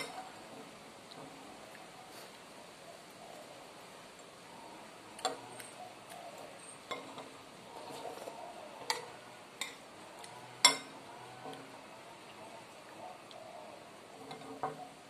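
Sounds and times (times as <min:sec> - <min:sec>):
cutlery clinking and scraping plate: 0:06.6 - 0:09.8, 0:10.6 - 0:11.6.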